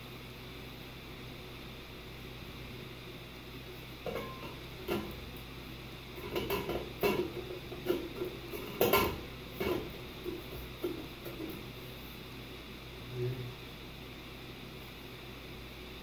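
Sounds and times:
glass cover clinking on metal: 4.1 - 5.0.

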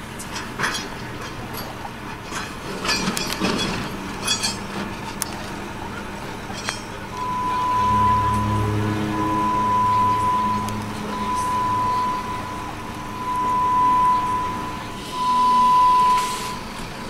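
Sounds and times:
steady background rumble: 5.2 - 17.0
beep-like tone: 7.1 - 16.9.

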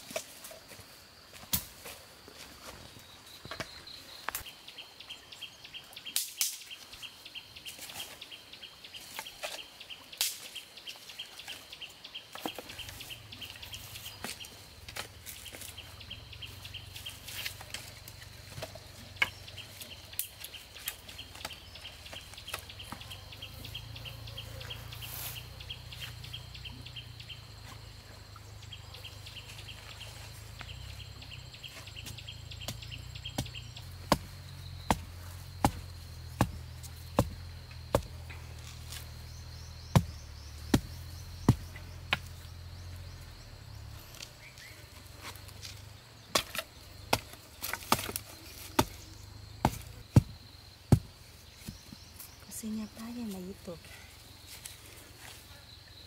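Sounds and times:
insects trilling: 0.0 - 56.0
blade chopping wood: 32.0 - 39.1, 39.8 - 42.4, 45.2 - 51.9.

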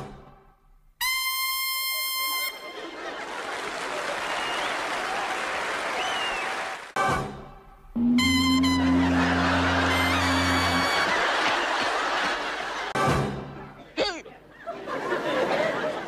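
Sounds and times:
audience applause: 2.8 - 7.0, 8.9 - 12.9
audience whistles: 4.2 - 5.1, 5.8 - 6.8, 8.0 - 11.3
trumpet high held note: 8.0 - 11.1.

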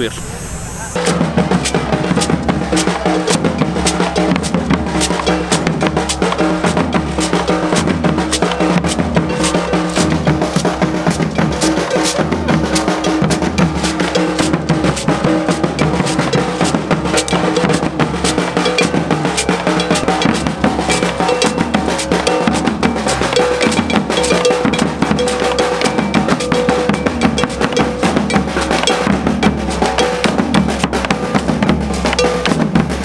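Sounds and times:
bell: 1.0 - 33.0
percussion ensemble drumming: 1.0 - 33.0
held pitched notes: 8.4 - 10.8, 13.9 - 32.6.

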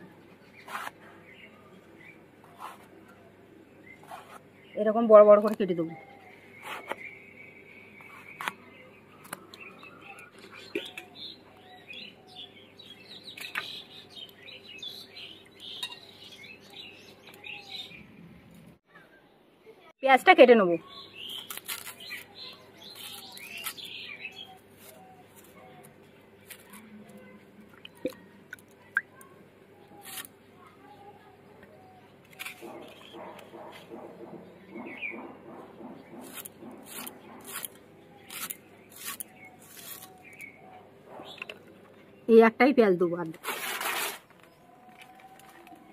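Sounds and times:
small birds chirping: 0.0 - 18.2, 20.5 - 43.0
onion being sliced on a blade: 0.6 - 1.0, 21.3 - 23.9, 36.2 - 40.5.

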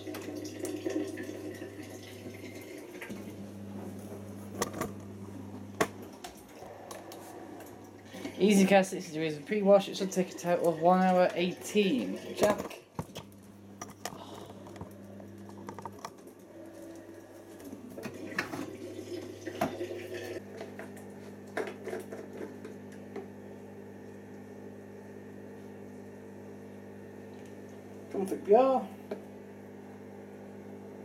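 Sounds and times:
steady low hum: 3.1 - 10.5.

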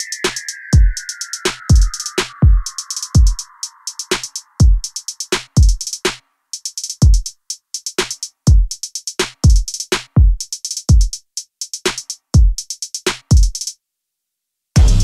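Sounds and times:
crisp hi-hat and snare hits: 0.0 - 13.8, 14.8 - 15.0
deep kick drums falling in pitch: 14.8 - 15.0.

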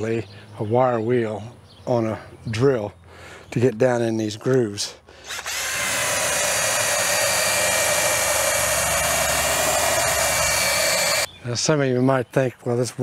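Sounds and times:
drill motor whine: 5.2 - 11.3.

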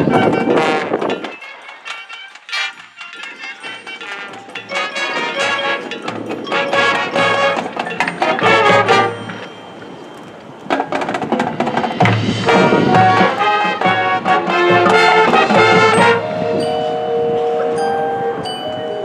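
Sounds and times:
marching band brass chords: 0.0 - 18.0
drum and percussion hits: 0.1 - 9.5, 10.7 - 16.3.

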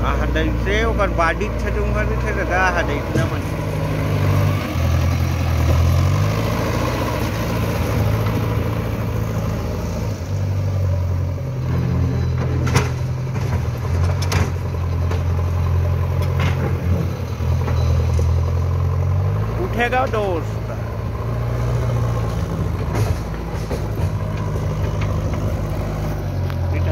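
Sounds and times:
diesel engine under load: 0.0 - 26.9.

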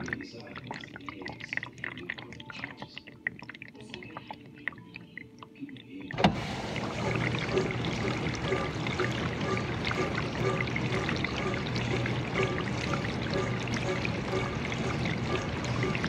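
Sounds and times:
water splashing and dripping: 0.0 - 16.0
dishwasher pump spraying water: 6.1 - 16.0.

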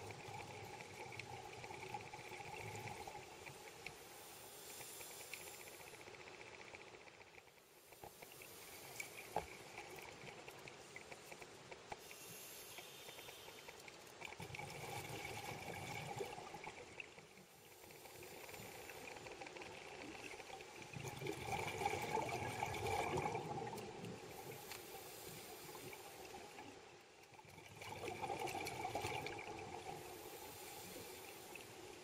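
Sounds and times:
faint crackle of water: 0.0 - 32.0
scuba diver exhaling bubbles: 14.4 - 16.8, 20.9 - 24.4, 27.5 - 30.7.

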